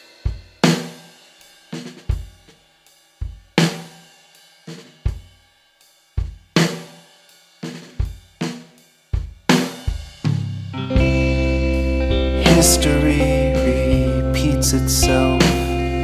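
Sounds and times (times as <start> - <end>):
drum kit playing a beat: 0.0 - 16.0
held chords: 10.8 - 16.0.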